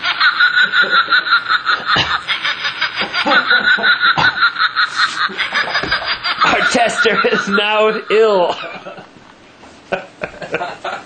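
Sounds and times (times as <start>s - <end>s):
people laughing: 0.0s - 9.2s, 9.9s - 11.0s.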